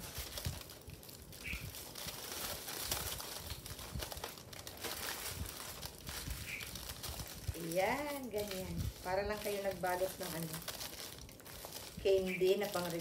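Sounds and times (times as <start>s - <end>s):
aluminium foil crinkling: 0.0s - 13.0s.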